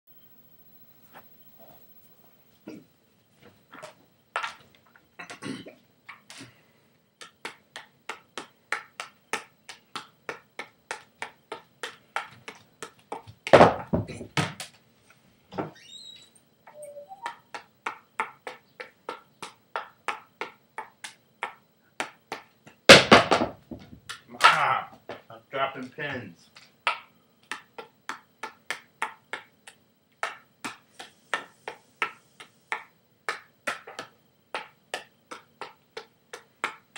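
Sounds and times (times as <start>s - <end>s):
juggling clubs slapping into hands: 7.2s - 14.8s, 17.3s - 25.3s, 26.5s - 36.9s.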